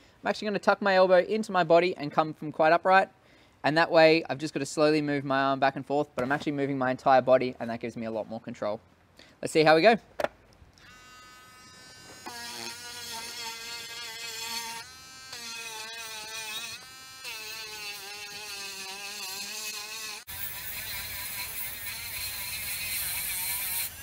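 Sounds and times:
rotary tool sanding wood: 0:10.9 - 0:24.0.

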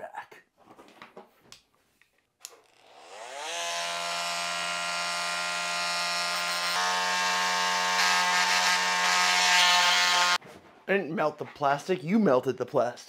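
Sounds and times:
power tool whining: 0:02.6 - 0:10.4.

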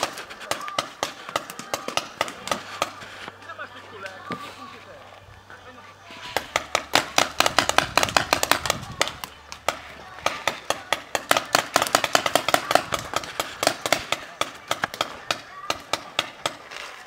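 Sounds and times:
sharp clicks and pops: 0:06.4 - 0:16.9.

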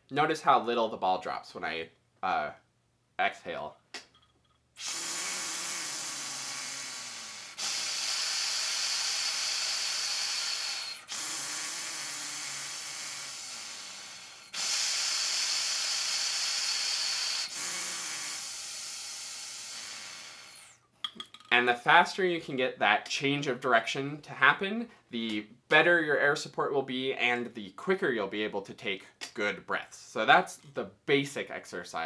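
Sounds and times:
air rushing through breathing straw: 0:04.8 - 0:20.8.

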